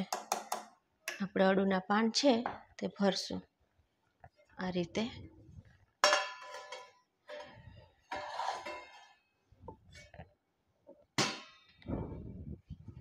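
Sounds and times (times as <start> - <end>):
metal plate scraping on stone: 6.5 - 9.2.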